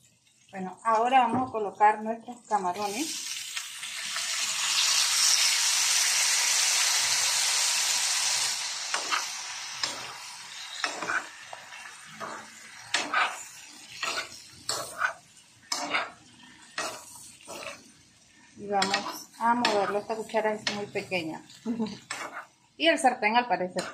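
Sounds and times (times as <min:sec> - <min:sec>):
shrimp sizzling in butter: 0:02.4 - 0:22.8
metal spoon scraping a pan: 0:08.9 - 0:18.0, 0:18.6 - 0:21.2, 0:22.0 - 0:22.6.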